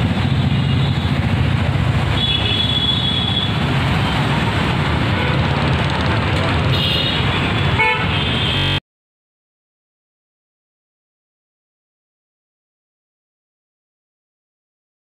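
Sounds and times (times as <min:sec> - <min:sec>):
busy road traffic: 0:00.0 - 0:08.8.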